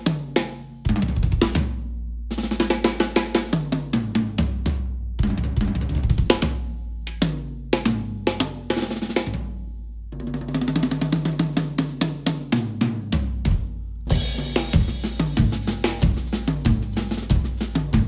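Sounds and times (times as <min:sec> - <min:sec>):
snare and cymbals: 0:00.0 - 0:18.0
tom drum fills: 0:00.0 - 0:18.0
bass drum hits: 0:13.3 - 0:18.0.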